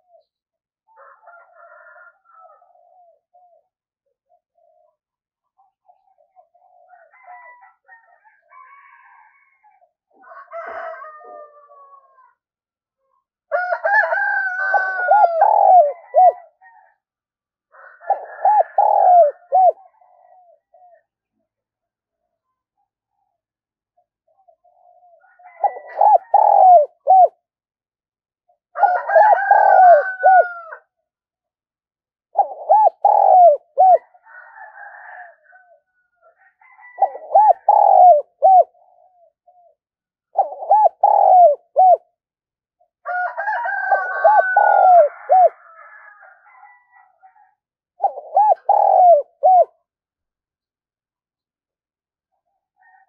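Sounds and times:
dove cooing: 0.0s - 12.3s, 13.9s - 17.0s, 17.7s - 21.1s, 24.0s - 27.4s, 28.8s - 30.8s, 32.3s - 42.1s, 43.1s - 45.8s, 46.5s - 49.8s.

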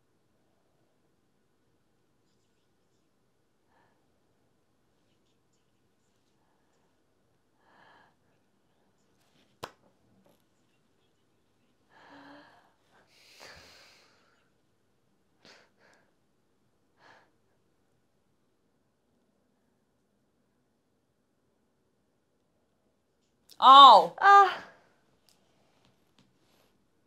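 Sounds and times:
faint breaths and sighs: 2.3s - 9.5s, 10.6s - 14.7s, 15.3s - 17.8s.

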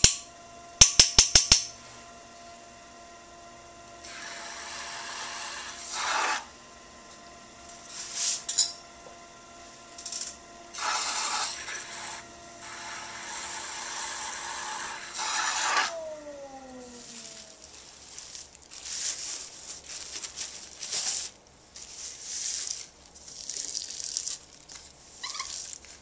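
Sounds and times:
pottery wheel motor whine: 0.0s - 20.0s.

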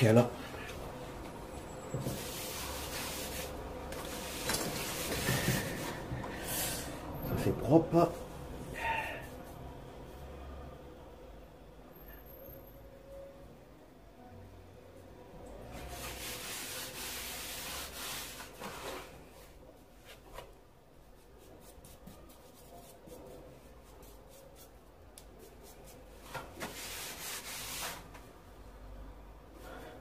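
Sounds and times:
cloth scrubbing floor tiles: 1.8s - 6.8s, 15.6s - 20.4s, 25.4s - 28.2s.

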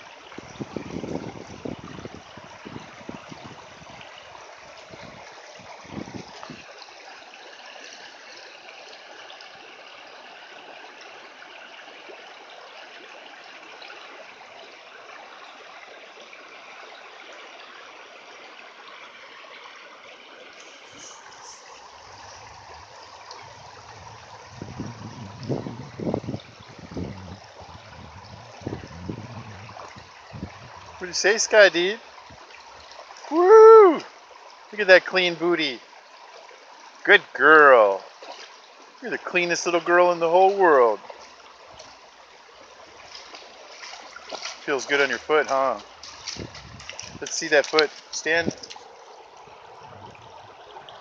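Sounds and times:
low thumps and splashes: 0.0s - 6.7s, 20.9s - 33.3s, 42.8s - 51.0s
creek running over stones: 0.0s - 51.0s
dog wading through water: 19.5s - 33.3s, 38.0s - 51.0s.

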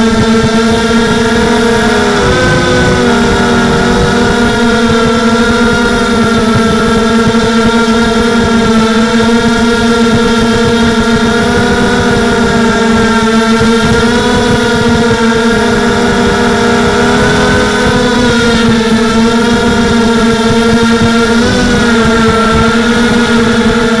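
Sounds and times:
drone motors buzzing whine: 0.0s - 24.0s.

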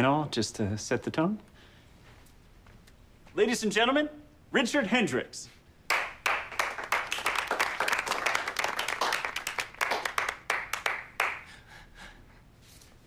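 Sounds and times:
people applauding: 5.9s - 11.6s.

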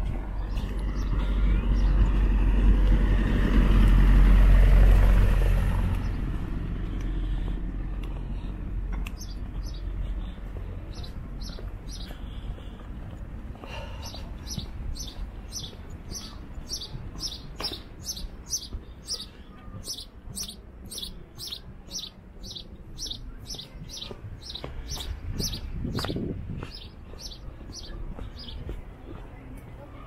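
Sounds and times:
small bird chirping: 9.1s - 9.9s, 10.9s - 12.1s, 14.0s - 28.6s.

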